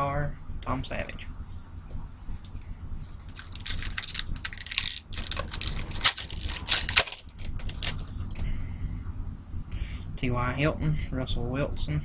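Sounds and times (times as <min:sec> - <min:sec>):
foil wrapper crinkling and tearing: 0:03.3 - 0:08.3.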